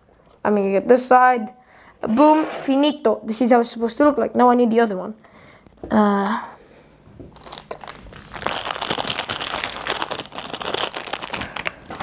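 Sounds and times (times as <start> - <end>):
plastic bags crinkling and rustling: 7.3 - 12.0.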